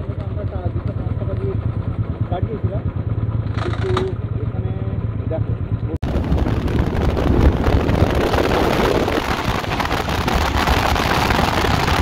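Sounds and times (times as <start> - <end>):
low motorcycle rumble: 0.0 - 12.0
wind rushing over microphone: 6.0 - 12.0.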